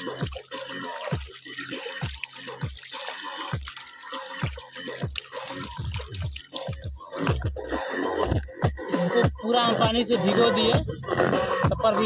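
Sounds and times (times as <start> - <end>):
water dripping: 0.0 - 7.7
water splashing and pouring: 0.0 - 7.7
muffled music with bass beat: 0.0 - 12.0.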